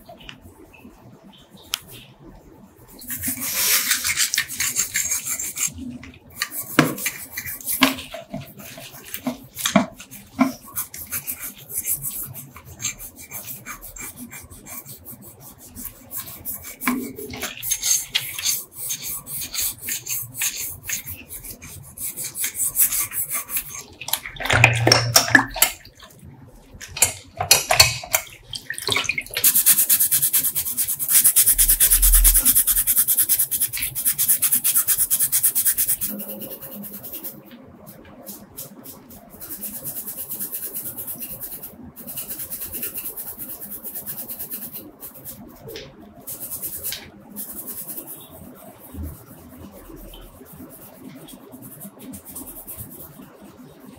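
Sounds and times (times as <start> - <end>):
brush scrubbing spring: 3.0 - 25.8, 29.4 - 37.4
water sloshing and splashing: 24.0 - 29.4.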